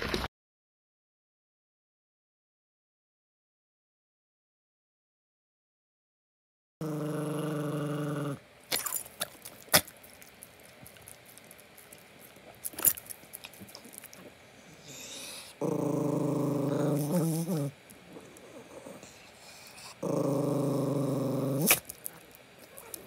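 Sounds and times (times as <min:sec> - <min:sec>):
small dog growling: 0:06.8 - 0:23.0.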